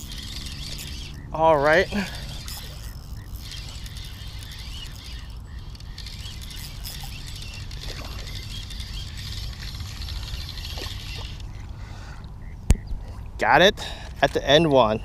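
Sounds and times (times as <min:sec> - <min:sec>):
fishing reel ticking: 0:00.0 - 0:11.5.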